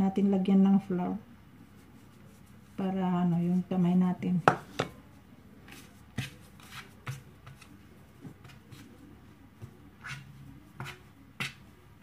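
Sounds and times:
hands patting and slapping dough: 4.4s - 12.0s.

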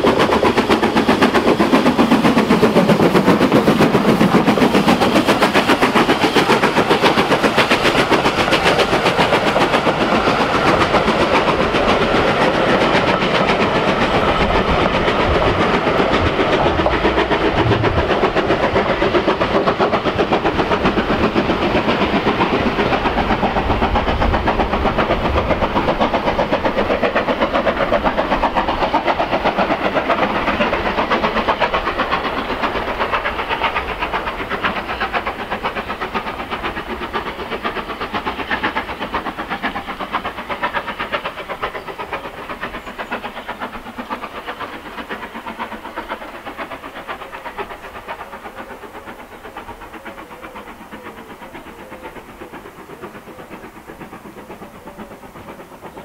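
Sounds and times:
train wheels clicking over rail joints: 0.0s - 56.0s.

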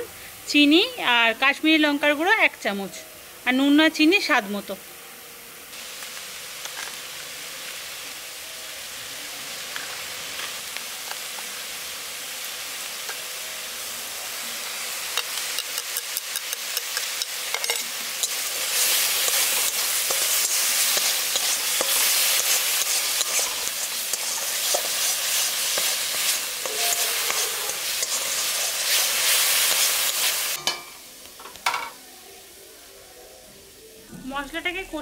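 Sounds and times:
spices sizzling in hot oil: 0.0s - 32.6s
metal spatula scraping pan: 15.2s - 30.9s.

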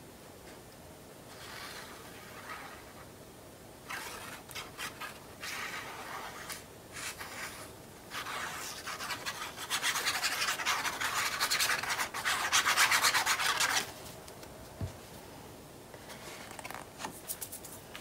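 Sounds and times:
glue bottle tip rubbing paper: 1.3s - 3.0s, 3.9s - 13.8s.

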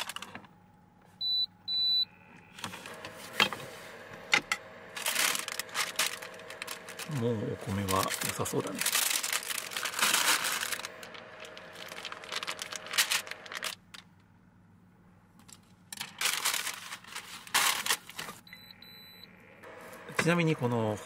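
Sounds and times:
plastic package crinkling: 0.0s - 0.4s, 4.9s - 14.2s, 15.4s - 18.4s.

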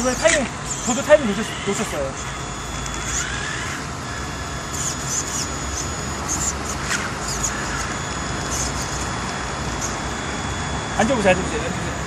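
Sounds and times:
short high squeaks: 0.0s - 9.2s
toy truck electric motor straining: 0.0s - 10.1s.

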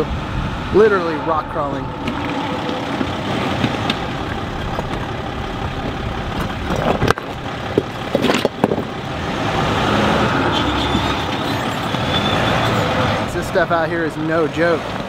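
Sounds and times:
van engine running: 0.0s - 15.0s.

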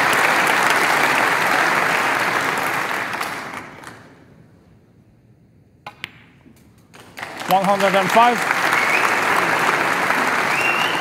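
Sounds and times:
audience applause: 0.0s - 4.0s, 7.2s - 11.0s.

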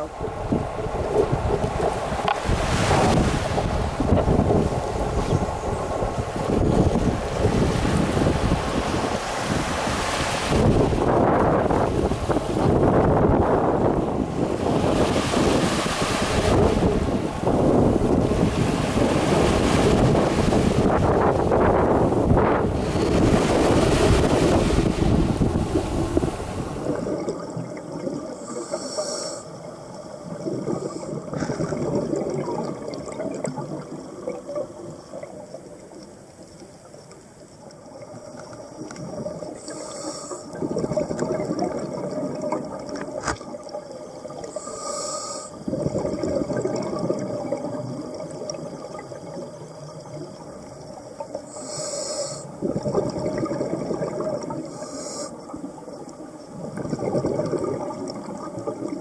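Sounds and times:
bubbling exhale underwater: 0.0s - 36.0s, 37.8s - 59.0s
regulator inhale hiss: 28.4s - 29.6s, 39.5s - 40.6s, 44.5s - 45.7s, 51.4s - 52.6s, 54.6s - 55.6s.

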